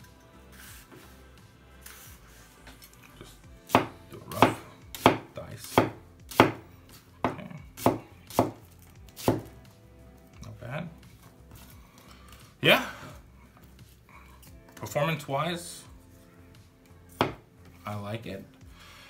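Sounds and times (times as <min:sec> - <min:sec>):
knife chopping on wooden board: 0:03.7 - 0:06.6, 0:07.2 - 0:09.6, 0:17.2 - 0:17.5.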